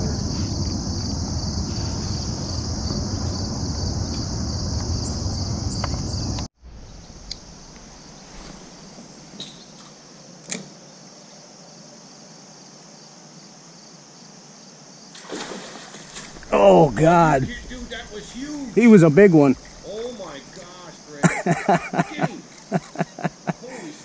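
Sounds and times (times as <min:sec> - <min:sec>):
low rumble: 0:00.0 - 0:08.3, 0:16.3 - 0:21.1
crickets trilling: 0:00.0 - 0:24.0.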